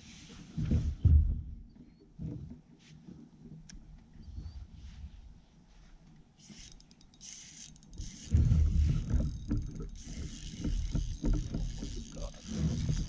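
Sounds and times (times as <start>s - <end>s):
fishing reel being cranked: 6.5s - 13.0s.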